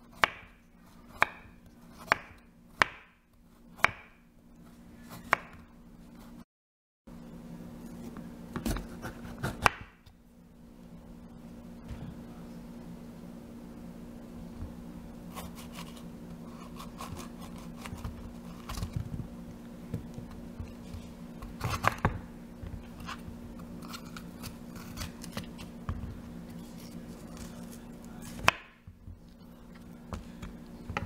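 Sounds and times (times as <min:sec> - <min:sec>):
knife cutting bell pepper: 0:07.9 - 0:10.0, 0:15.3 - 0:19.0, 0:20.2 - 0:22.2, 0:22.8 - 0:25.8, 0:26.5 - 0:28.8.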